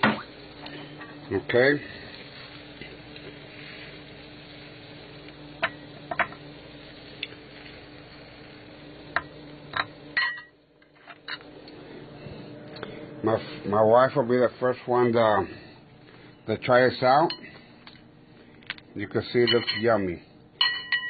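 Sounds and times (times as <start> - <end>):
steady low hum: 0.0 - 21.0
utensils clinking on pan and plate: 9.7 - 11.4, 19.4 - 19.9, 20.6 - 21.0.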